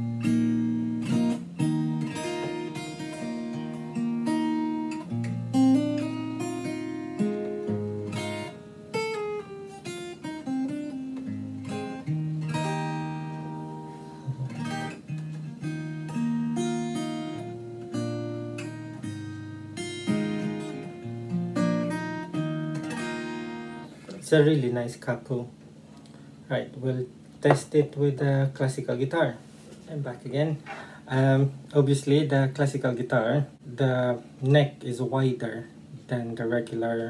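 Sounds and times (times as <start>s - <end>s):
acoustic guitar strumming chords: 0.0s - 25.2s.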